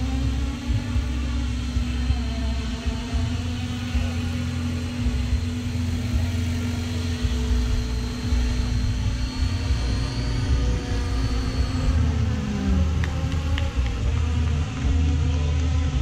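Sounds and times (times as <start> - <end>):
low rumble: 0.0 - 16.0
model helicopter rotor hum: 0.0 - 16.0.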